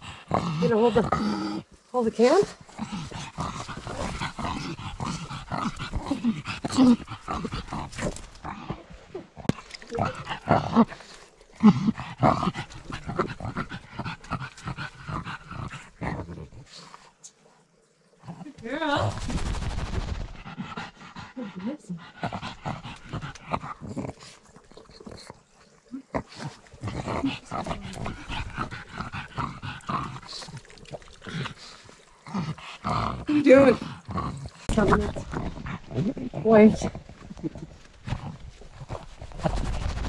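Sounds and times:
dog breathing hard and grunting: 0:00.0 - 0:17.2, 0:18.2 - 0:40.0
dog panting: 0:19.8 - 0:25.4, 0:26.2 - 0:30.4.

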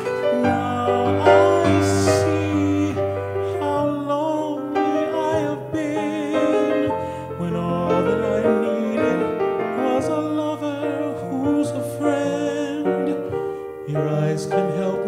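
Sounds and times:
man singing with vibrato: 0:00.0 - 0:15.0
piano accompaniment: 0:00.0 - 0:15.0.

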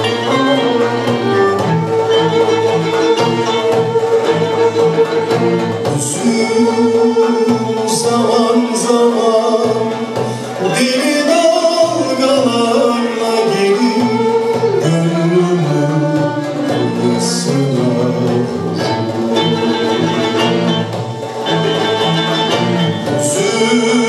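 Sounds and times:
violins and small ensemble: 0:00.0 - 0:24.0
man singing: 0:05.9 - 0:20.0, 0:23.1 - 0:24.0.

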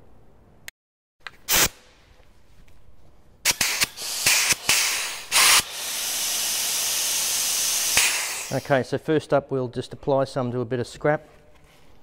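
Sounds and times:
pneumatic gun hissing air: 0:01.5 - 0:01.8, 0:03.4 - 0:08.8
short puffs of air: 0:03.4 - 0:08.8.

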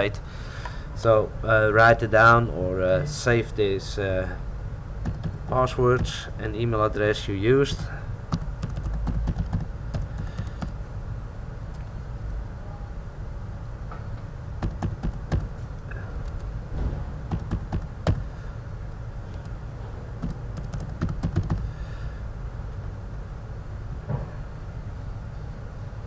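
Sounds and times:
steady low hum: 0:00.0 - 0:26.0
typing on computer keyboard: 0:05.0 - 0:05.4, 0:08.3 - 0:10.8, 0:14.6 - 0:15.5, 0:17.3 - 0:18.2, 0:20.2 - 0:21.6.

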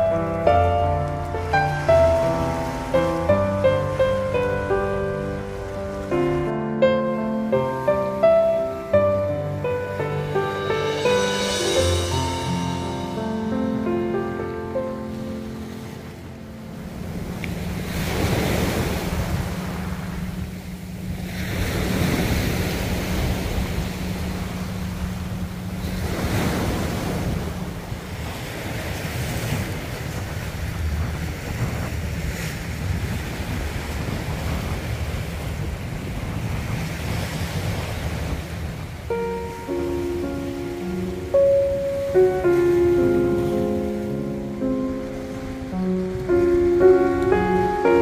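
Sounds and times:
sea waves washing onto shore: 0:00.0 - 0:48.0
wind buffeting microphone: 0:14.6 - 0:48.0.

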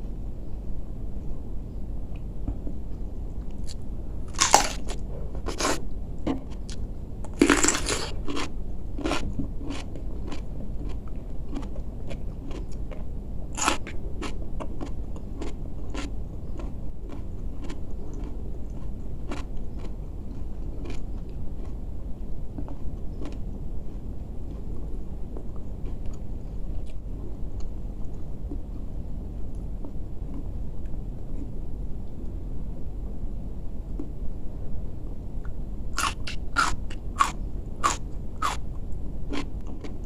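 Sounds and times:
wet crunchy chewing: 0:03.5 - 0:05.8, 0:06.6 - 0:21.8, 0:36.0 - 0:38.6
biting into cucumber: 0:03.6 - 0:05.8, 0:13.6 - 0:18.3, 0:36.0 - 0:38.6.

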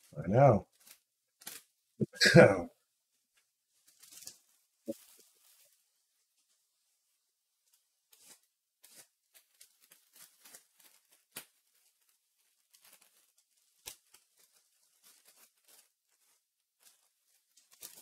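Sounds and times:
packaging crinkling and tearing: 0:00.7 - 0:01.8, 0:03.8 - 0:05.8, 0:08.0 - 0:18.0.

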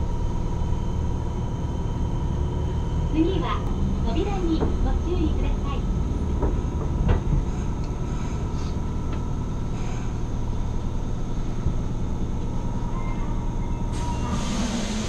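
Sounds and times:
subway train rumble: 0:00.0 - 0:15.0
train doors hissing open: 0:13.9 - 0:15.0.

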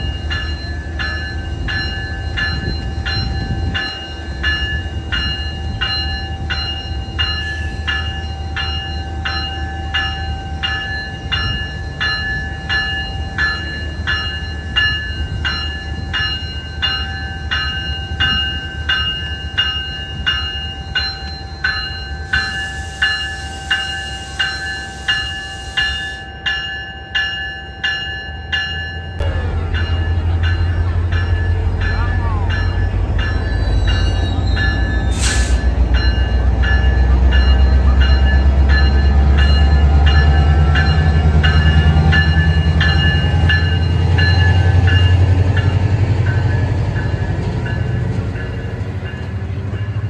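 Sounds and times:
bell ringing: 0:00.0 - 0:50.0
diesel locomotive idling: 0:29.2 - 0:50.0
air hiss: 0:35.1 - 0:35.7.

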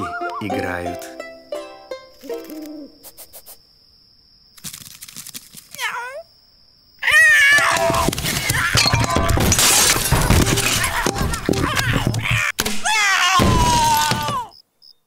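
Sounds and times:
things clattering and crashing: 0:07.5 - 0:12.8.

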